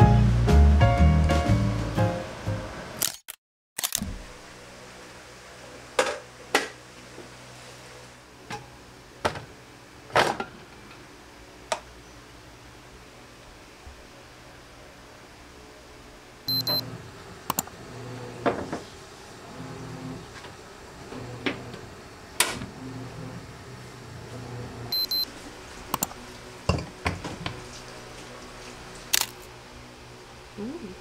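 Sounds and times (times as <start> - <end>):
appliance double beep: 16.5 - 16.9, 24.9 - 25.3.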